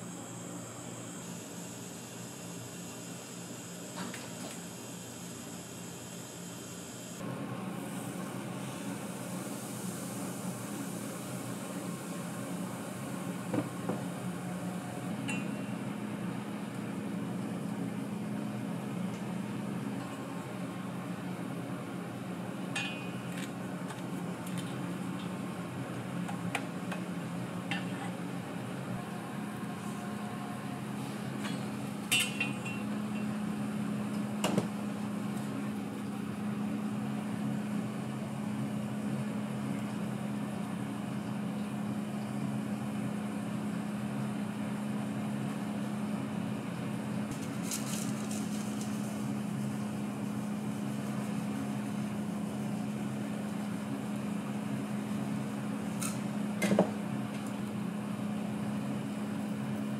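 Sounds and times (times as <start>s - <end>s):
kitchen equipment humming: 22.5s - 37.4s.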